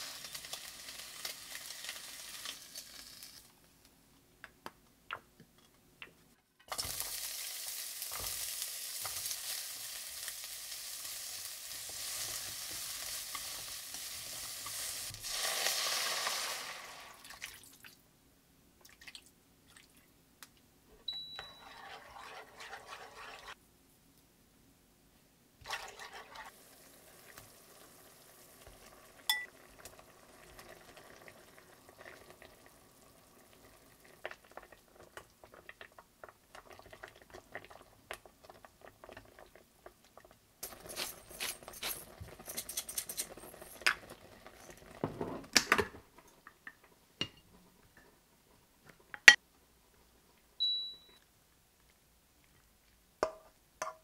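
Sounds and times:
sizzling pan being stirred: 6.6s - 17.2s, 21.1s - 23.6s, 25.7s - 30.7s, 40.6s - 45.0s
dishes and utensils clinking: 40.6s - 44.0s.

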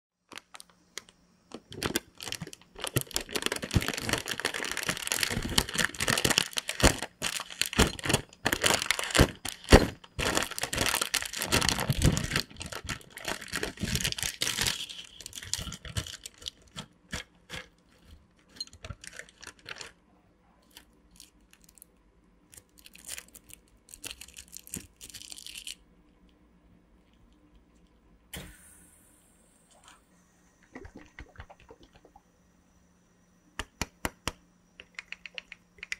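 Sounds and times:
plastic snack bag crinkling: 0.3s - 20.0s, 20.6s - 25.8s
plastic wrapper crinkling: 0.3s - 20.0s, 20.6s - 25.8s.

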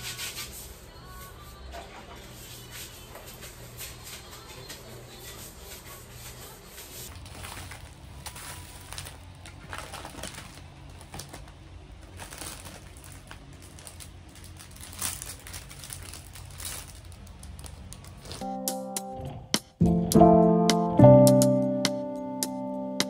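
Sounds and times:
rustling in wicker basket: 1.7s - 18.4s.

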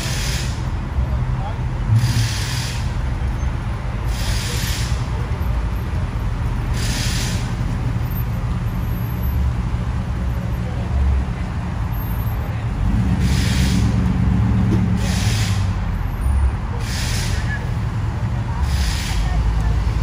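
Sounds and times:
pickup truck engine rumble: 0.0s - 20.0s
short hisses: 6.7s - 7.6s.

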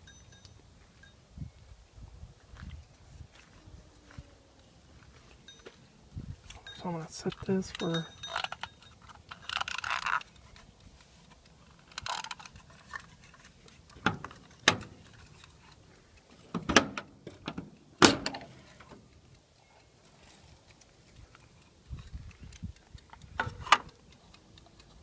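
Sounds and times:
door and latch clicks: 14.0s - 15.0s, 16.6s - 18.5s.

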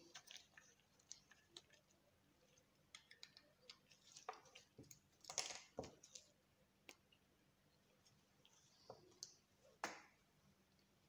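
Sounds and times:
small objects clicking and tapping: 2.9s - 6.3s.

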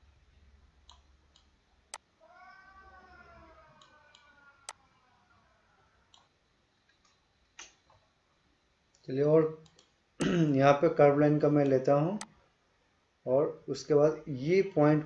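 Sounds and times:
computer mouse clicks: 3.8s - 4.8s, 9.0s - 10.0s.

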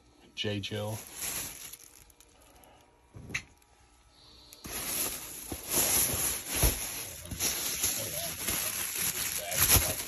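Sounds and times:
plastic bag rustling: 0.8s - 2.6s, 4.6s - 10.0s.

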